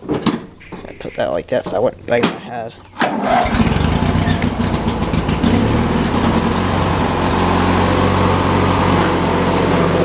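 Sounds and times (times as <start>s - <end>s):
lawn mower engine running: 3.0s - 10.0s.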